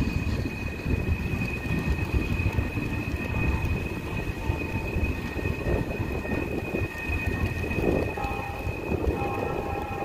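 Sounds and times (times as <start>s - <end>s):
train wheels rumbling on rails: 0.0s - 10.0s.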